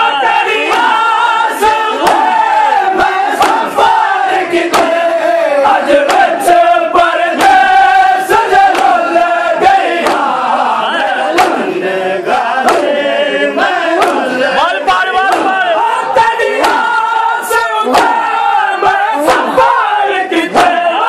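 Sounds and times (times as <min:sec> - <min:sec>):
men chanting a lament: 0:00.0 - 0:21.0
hands slapping chests: 0:00.4 - 0:14.4, 0:15.2 - 0:15.8, 0:16.4 - 0:19.8, 0:20.4 - 0:20.8.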